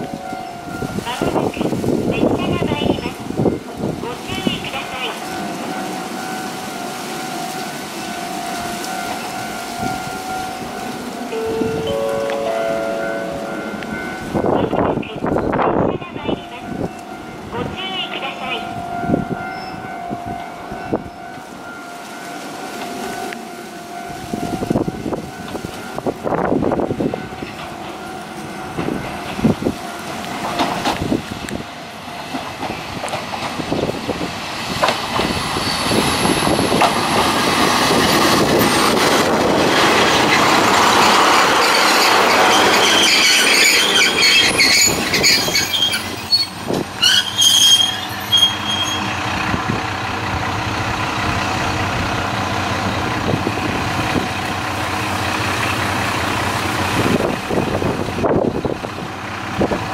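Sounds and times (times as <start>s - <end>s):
diesel railcar passing: 0.0s - 59.9s
brake and wheel squeal: 41.6s - 49.3s
diesel engine idling: 49.2s - 59.9s.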